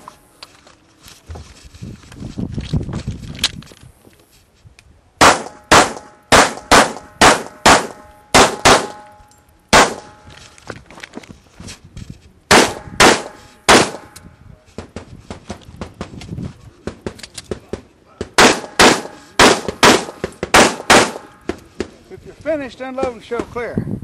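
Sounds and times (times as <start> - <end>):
pistol shots: 5.2 - 9.1, 9.7 - 10.2, 12.5 - 14.1, 18.2 - 21.4.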